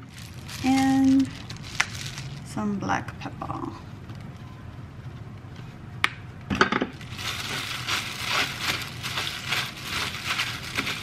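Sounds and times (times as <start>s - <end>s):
raw meat squishing: 0.0s - 2.5s, 7.0s - 11.0s
plastic glove crinkling: 0.0s - 2.8s, 6.9s - 11.0s.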